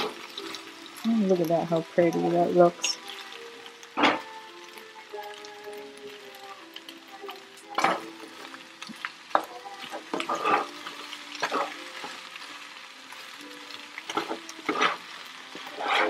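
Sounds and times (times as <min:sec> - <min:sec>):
food sizzling: 0:00.0 - 0:16.0
spatula scraping frying pan: 0:07.2 - 0:12.3, 0:14.0 - 0:16.0.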